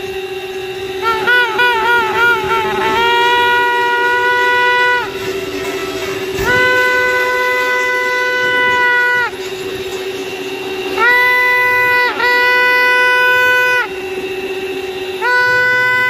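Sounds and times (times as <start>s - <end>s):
conch shell blasts: 0.0s - 16.0s.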